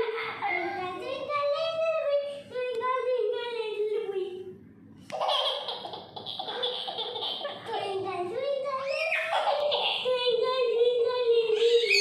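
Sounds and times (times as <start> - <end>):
boy laughing hard: 5.2 - 7.7.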